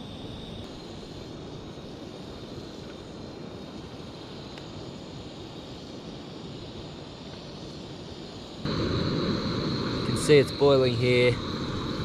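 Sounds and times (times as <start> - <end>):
gas stove burner running: 8.6 - 12.0.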